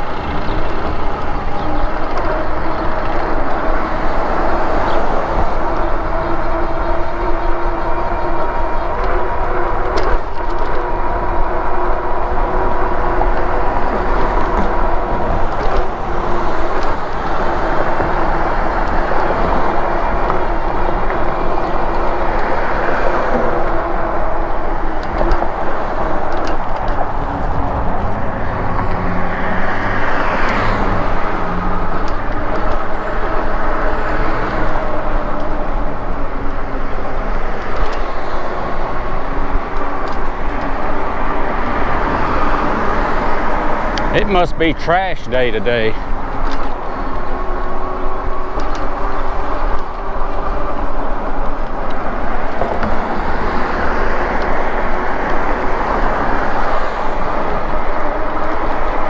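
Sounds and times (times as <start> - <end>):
electric motor whine: 0.0 - 44.4
vehicle passing: 0.0 - 59.0
wind buffeting microphone: 0.0 - 59.0.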